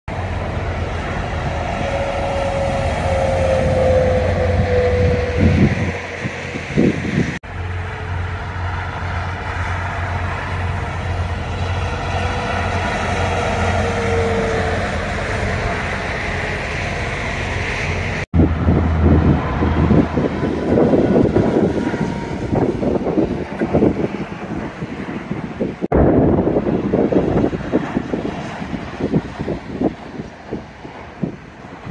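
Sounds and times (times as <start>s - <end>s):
falling whine of passing truck: 0.1s - 31.9s
heavy trucks passing: 0.1s - 31.9s.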